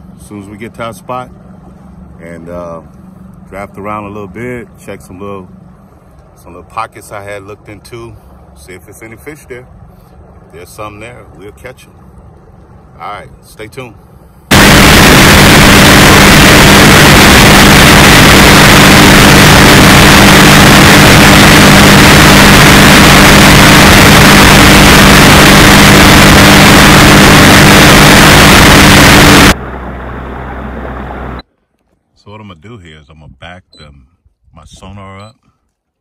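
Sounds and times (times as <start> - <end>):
outboard motor running: 14.5 - 31.4.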